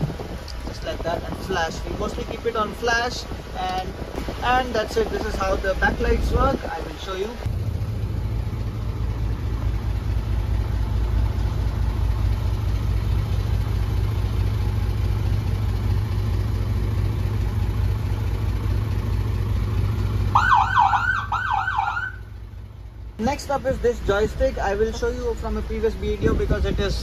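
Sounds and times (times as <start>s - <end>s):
fire truck engine idling: 7.3s - 26.8s
siren yelping: 20.3s - 22.3s.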